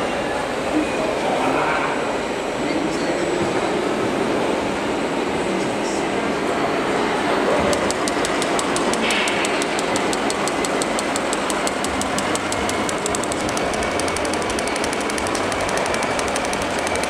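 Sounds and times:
mechanical running noise: 7.6 - 17.0
rapid even ticking: 7.7 - 17.0.

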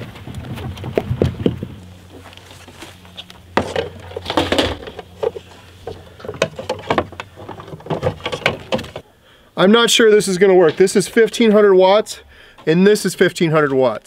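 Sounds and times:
rustling of cords: 0.0 - 9.1.

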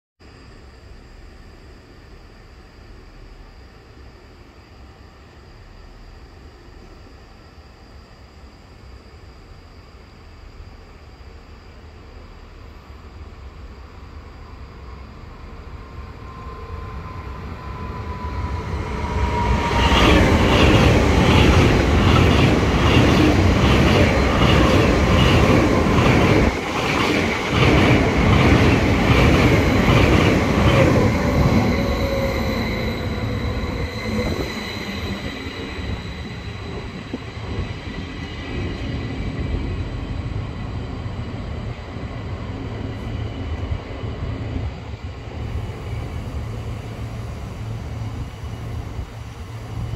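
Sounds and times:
thin high whine: 0.3 - 49.9
electric train running: 13.4 - 49.9.

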